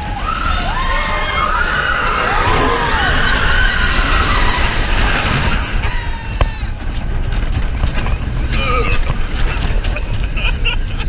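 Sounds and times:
riders screaming: 0.0s - 7.0s
roller coaster train rumbling: 0.0s - 11.0s.

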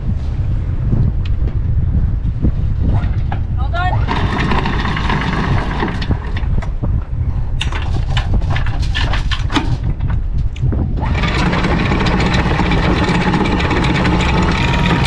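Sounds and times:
wind rumble on microphone: 0.0s - 15.0s
anchor chain clanking and rattling: 4.0s - 6.8s, 7.6s - 10.3s, 11.0s - 15.0s.

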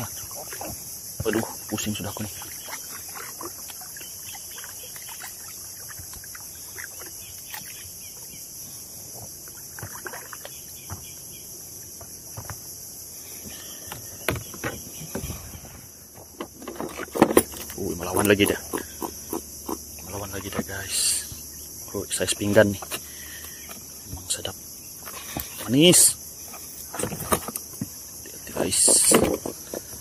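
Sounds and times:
kayak paddle splashing in water: 0.0s - 8.3s, 9.4s - 11.1s
high-pitched insect drone: 0.0s - 30.0s
water drips: 0.1s - 7.8s
paddle knocks: 13.9s - 17.7s.

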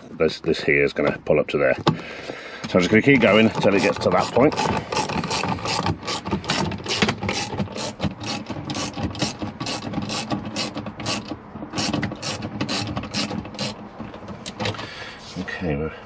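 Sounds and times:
ratchet wrench clicking: 3.8s - 13.8s.

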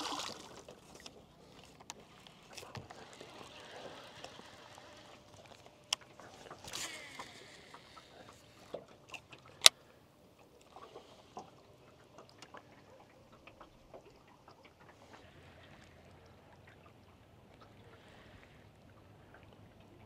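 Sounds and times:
water lapping against boat hull: 0.0s - 20.0s.

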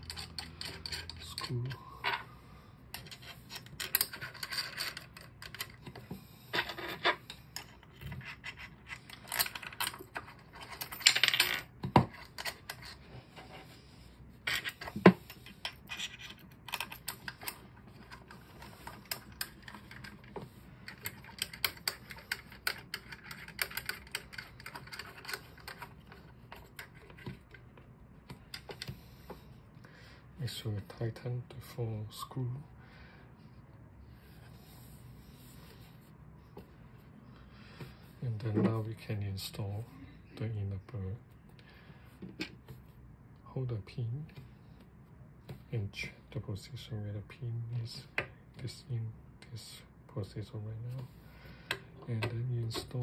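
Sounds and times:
small metallic clicks and scrapes: 0.0s - 2.2s, 2.9s - 13.5s, 14.4s - 29.4s.

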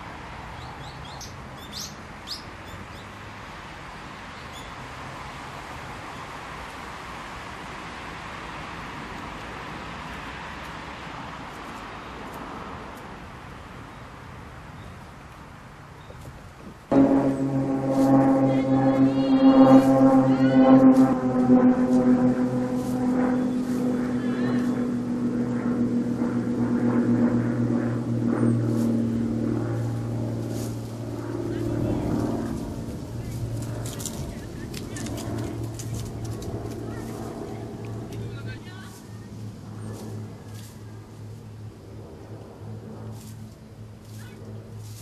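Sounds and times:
rushing outdoor background noise: 0.0s - 45.0s
engine drone: 16.9s - 44.8s.

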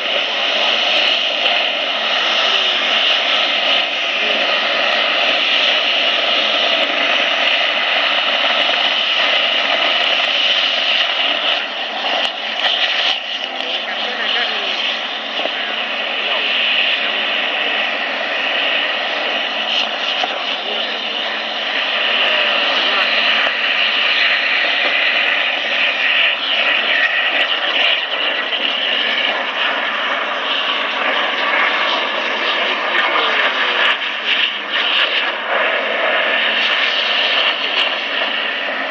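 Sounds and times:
water-mist cannon fan and spray: 0.0s - 38.9s.

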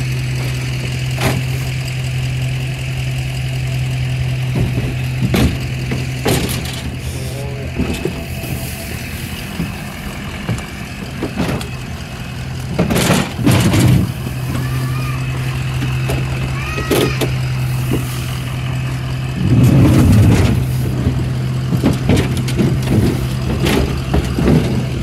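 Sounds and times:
truck engine idling: 0.0s - 25.0s.

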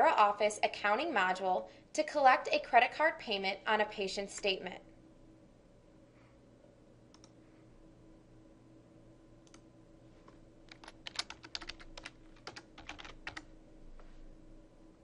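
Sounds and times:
low steady hum: 0.0s - 15.0s
keyboard typing: 10.7s - 13.5s.

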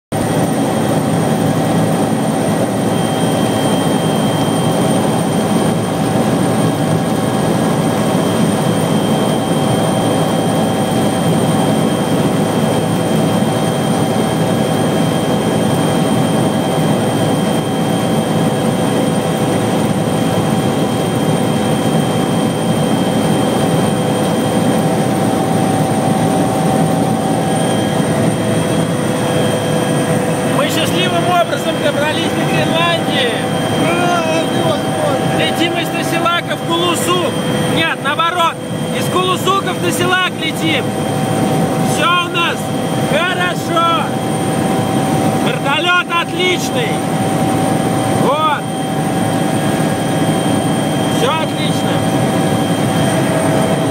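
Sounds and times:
helicopter engine and rotor drone: 0.1s - 53.9s
high whines: 22.4s - 53.9s.

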